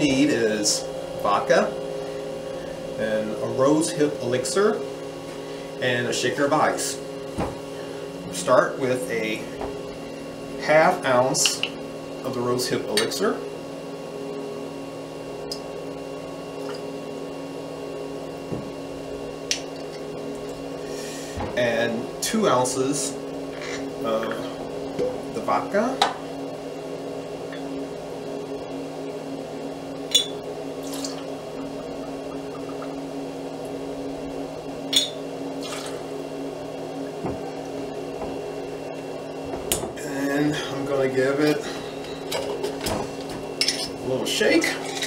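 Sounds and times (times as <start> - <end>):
appliance hum: 0.0 - 45.0
liquid pouring over ice: 35.6 - 36.0.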